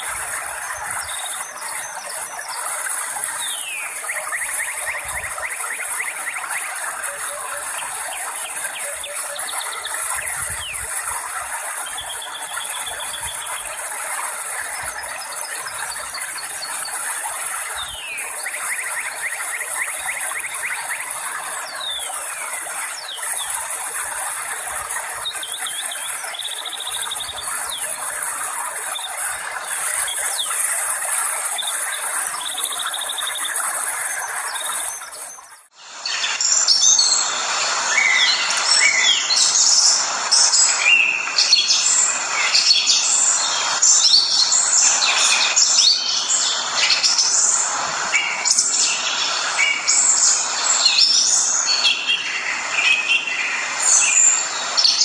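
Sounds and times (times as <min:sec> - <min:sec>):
birds chirping: 0:00.0 - 0:55.0
chorus of many chirping birds: 0:00.0 - 0:55.0.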